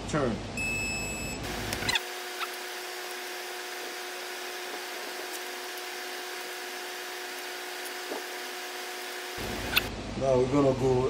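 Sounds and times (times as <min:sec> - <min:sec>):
machine hum with hiss: 0:00.6 - 0:10.2.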